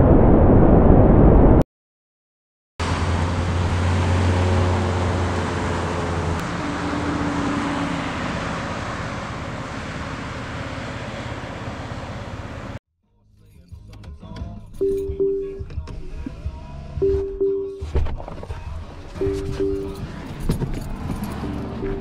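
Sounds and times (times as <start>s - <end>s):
car passing by: 2.8s - 12.8s.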